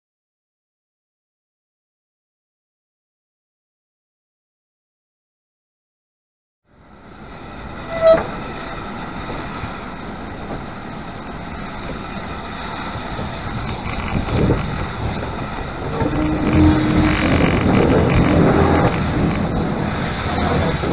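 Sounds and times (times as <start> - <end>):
steam locomotive hiss and running: 6.9 - 20.9.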